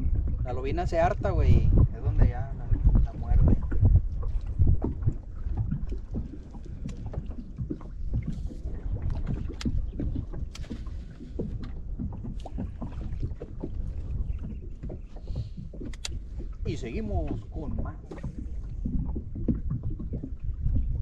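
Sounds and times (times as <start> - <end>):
low steady rumble: 0.0 - 21.0
waves slapping boat hull: 0.0 - 21.0.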